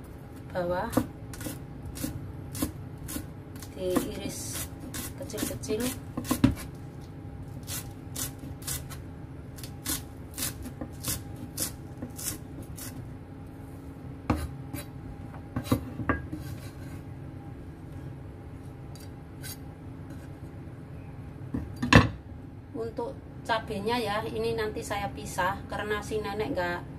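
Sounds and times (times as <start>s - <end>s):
knife chopping on wooden board: 0.9s - 6.7s
knife blade scraping: 19.0s - 20.4s.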